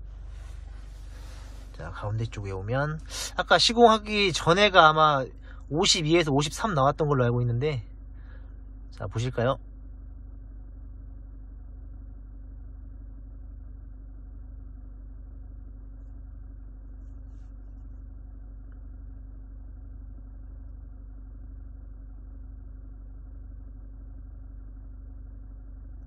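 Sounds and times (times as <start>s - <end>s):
diesel engine idling inside cabin: 0.0s - 26.0s.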